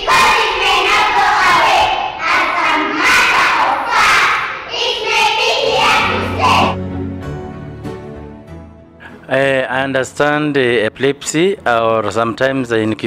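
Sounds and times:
children reciting in unison: 0.0 - 6.8
low background music: 5.2 - 13.0.

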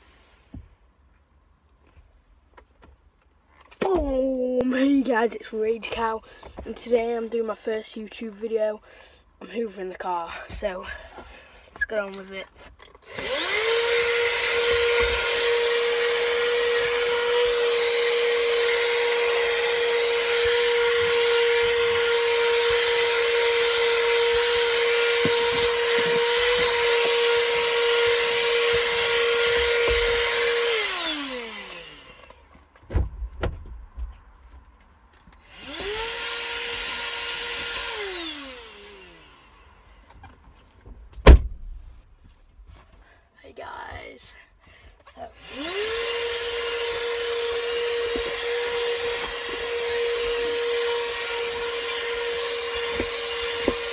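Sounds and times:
vacuum cleaner whining: 13.0 - 32.4, 35.4 - 40.0, 45.2 - 53.9
sharp loud knock: 41.2 - 41.8.

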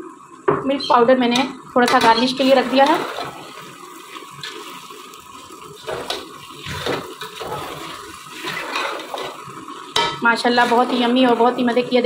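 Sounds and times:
wet churning mixture: 2.4 - 9.8
fork scraping metal pot: 6.0 - 9.4.

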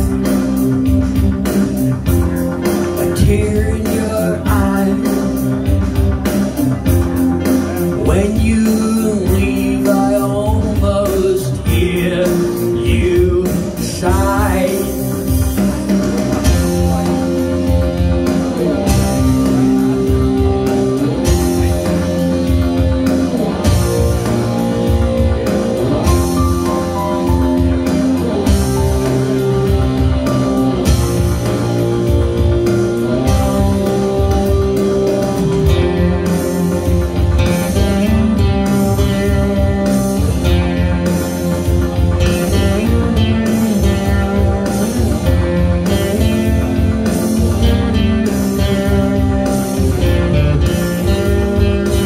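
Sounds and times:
live rock music with electric guitar: 0.0 - 52.0
person singing: 2.6 - 15.7.

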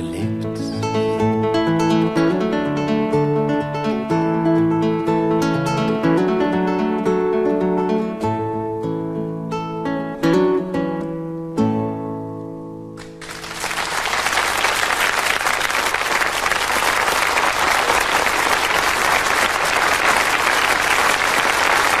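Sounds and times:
acoustic guitar chord ringing: 0.0 - 13.5
audience applause: 13.0 - 22.0.

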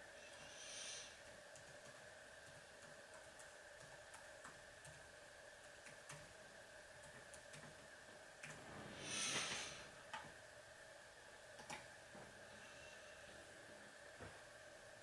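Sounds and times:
faint steady hum: 0.0 - 15.0
breathy puff of air: 0.4 - 1.2, 8.9 - 9.9
mouse clicks: 11.6 - 11.9.

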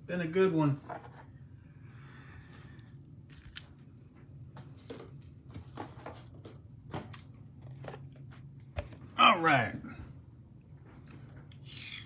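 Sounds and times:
low steady hum: 0.0 - 12.0
cards clicking and rustling: 3.3 - 3.8.

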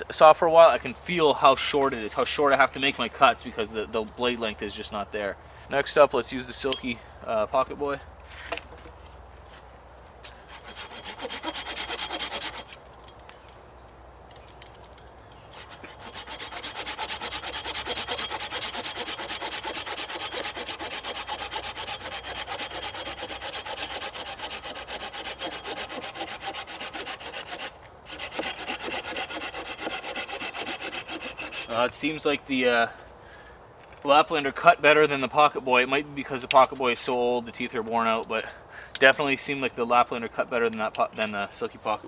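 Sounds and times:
hand saw cutting wood: 10.4 - 12.8, 15.5 - 31.9.

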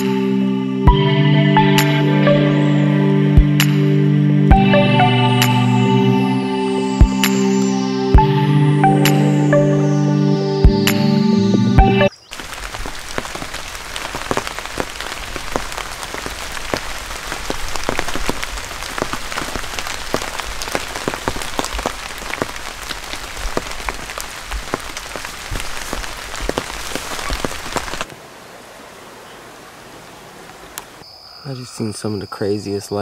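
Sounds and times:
steady rain falling: 12.1 - 31.0
faint steady hiss: 12.2 - 33.0.

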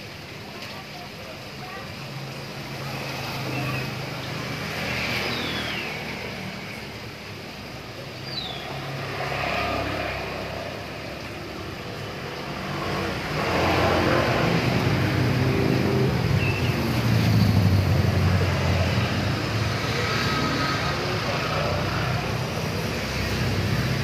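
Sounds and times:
faint high chirps: 5.1 - 6.3.

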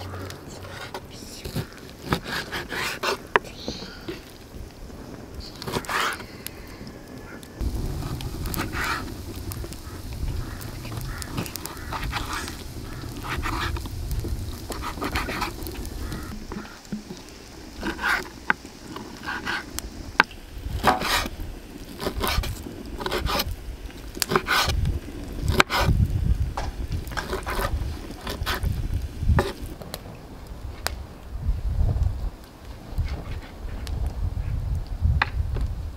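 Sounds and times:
low rumble: 7.6 - 16.4.

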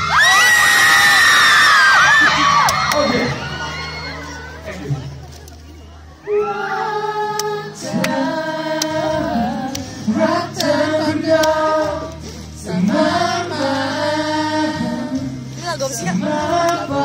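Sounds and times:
backing music: 0.0 - 17.0
crowd singing along: 6.2 - 17.0
person singing pop ballad: 6.4 - 17.0.

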